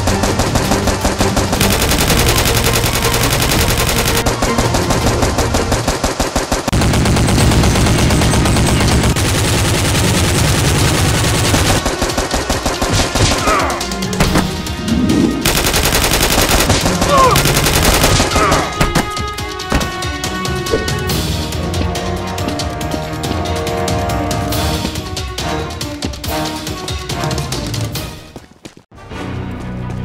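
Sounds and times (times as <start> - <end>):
machine-gun fire: 0.0 - 13.5, 15.4 - 19.1.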